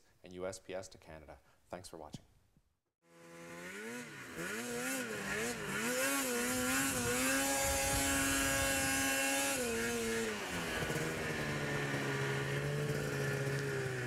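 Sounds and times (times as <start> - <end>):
engine running at high revs: 3.1 - 14.0.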